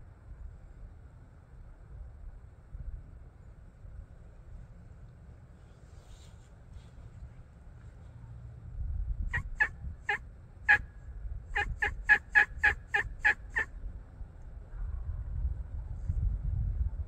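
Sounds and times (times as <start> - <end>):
turkey yelping: 9.3 - 10.8, 11.6 - 13.7.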